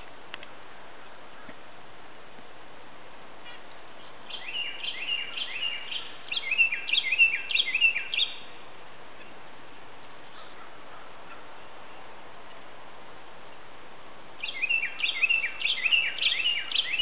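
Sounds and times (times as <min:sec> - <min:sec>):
faint background hiss: 0:00.0 - 0:17.0
bird singing whistled notes: 0:04.3 - 0:08.6, 0:14.4 - 0:17.0.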